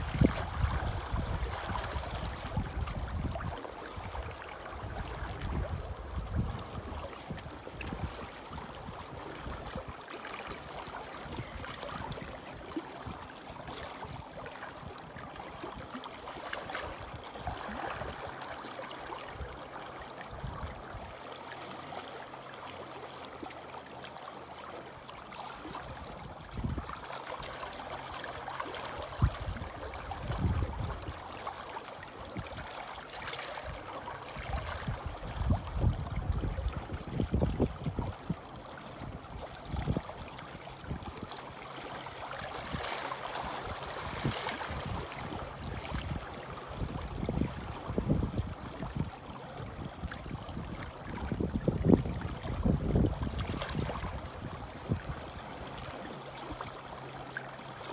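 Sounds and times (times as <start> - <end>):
wind rumble on microphone: 0.0 - 9.9, 25.8 - 27.1, 29.0 - 31.5, 33.7 - 41.5, 43.5 - 55.9
waves lapping against rocks: 0.0 - 57.9.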